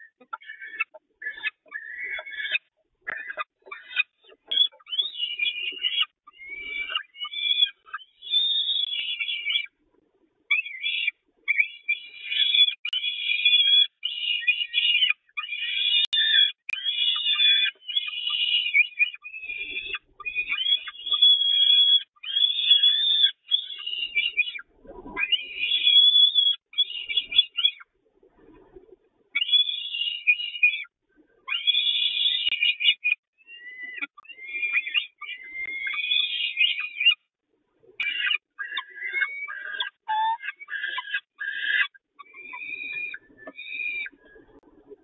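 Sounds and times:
falcons calling: 0.0 - 9.7, 38.0 - 44.4.

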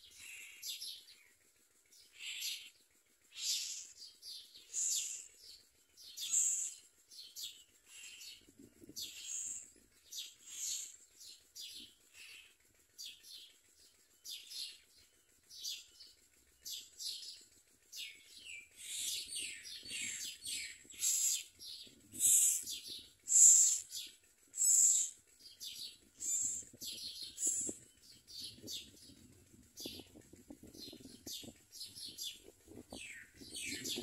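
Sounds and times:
nestlings begging calls: 0.0 - 0.8, 2.0 - 12.6, 18.7 - 29.0.

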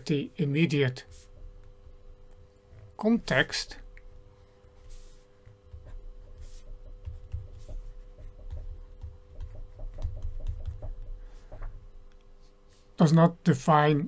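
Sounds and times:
steady electrical hum: 0.0 - 14.0
stylus tapping and scratching tablet: 4.0 - 12.6.

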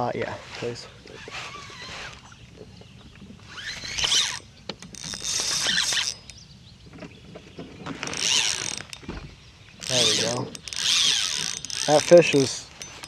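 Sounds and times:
fishing reel whirring: 1.2 - 2.4, 3.5 - 6.4, 8.0 - 9.0, 9.8 - 13.0.

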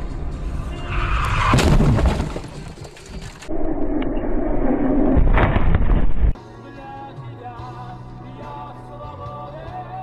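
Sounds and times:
car crash impact: 1.0 - 3.4.

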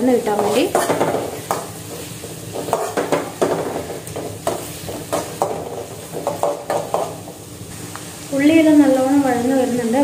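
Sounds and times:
onions sizzling in hot oil: 0.0 - 10.0
metal spatula scraping pan: 0.3 - 7.2.

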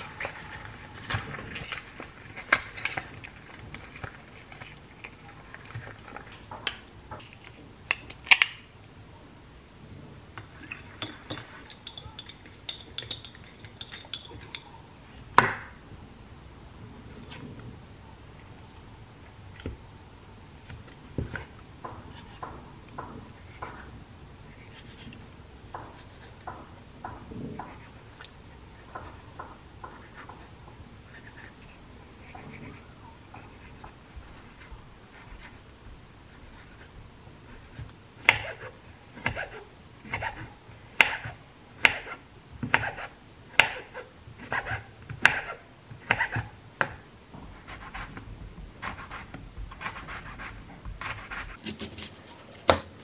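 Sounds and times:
knife chopping on wooden board: 37.7 - 47.0
knife slicing on wooden board: 51.0 - 52.9.

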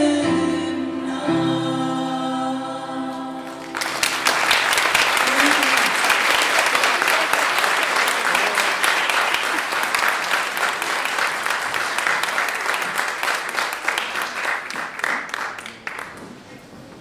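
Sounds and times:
audience applauding: 3.4 - 16.4.

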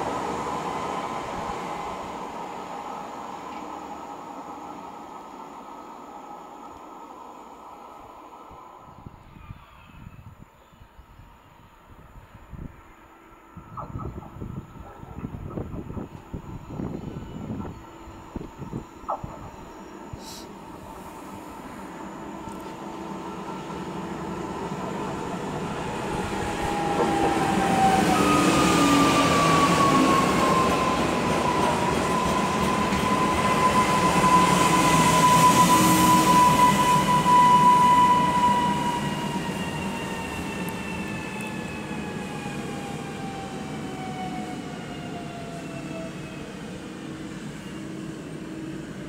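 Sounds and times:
train wheels rumbling on rails: 13.7 - 49.0.

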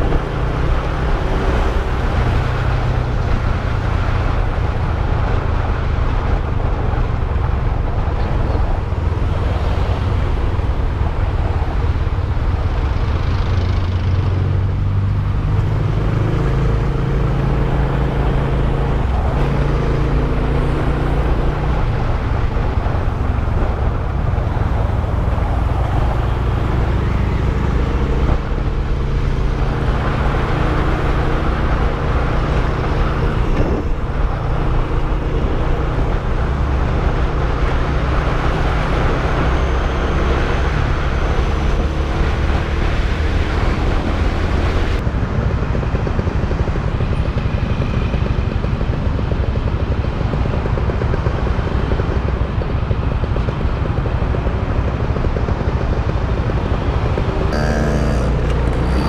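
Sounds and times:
road and wind noise: 0.0 - 59.0
motorcycle engine running: 45.2 - 59.0.

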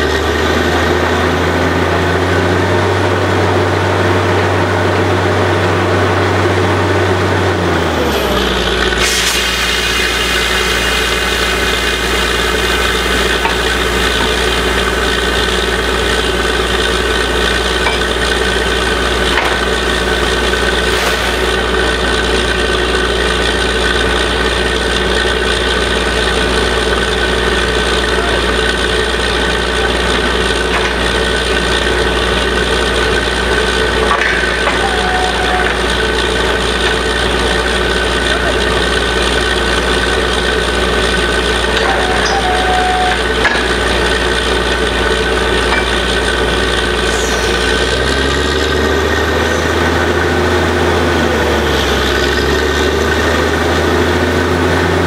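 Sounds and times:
drilling rig engine: 0.0 - 55.0
air compressor whine and hiss: 8.9 - 16.0.

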